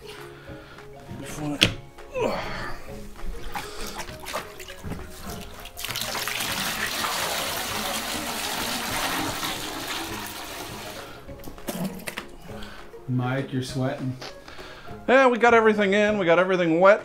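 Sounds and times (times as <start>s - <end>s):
water pouring into plastic bucket: 3.5s - 11.1s.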